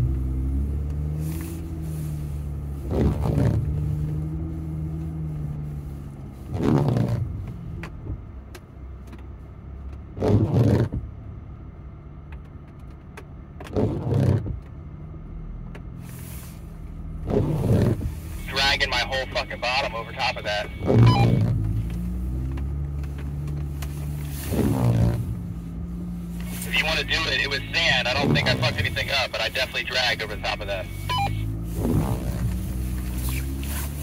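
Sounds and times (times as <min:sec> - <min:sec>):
steady engine hum: 0:00.0 - 0:34.0
truck engine revving: 0:17.0 - 0:34.0.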